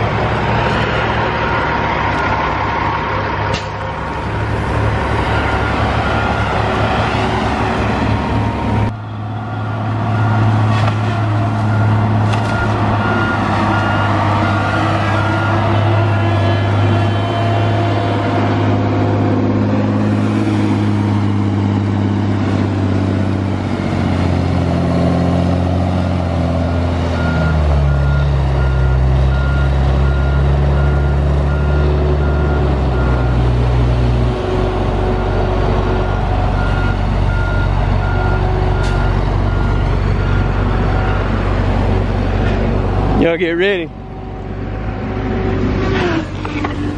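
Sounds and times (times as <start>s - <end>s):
heavy diesel engines under load: 0.0s - 46.9s
backup alarm beeping: 11.6s - 15.9s.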